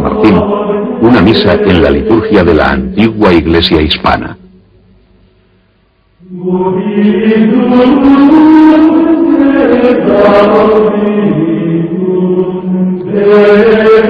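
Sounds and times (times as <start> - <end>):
voices chanting in unison: 0.0 - 2.7, 6.2 - 14.0.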